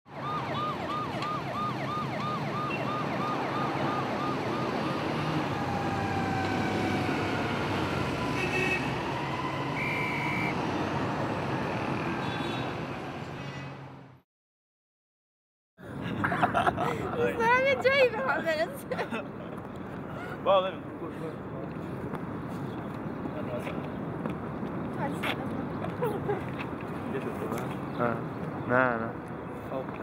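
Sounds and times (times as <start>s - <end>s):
siren yelping: 0.1s - 13.2s
street traffic: 0.1s - 14.2s, 15.8s - 30.0s
vehicle horn: 8.3s - 9.0s, 9.8s - 10.6s, 12.2s - 13.9s.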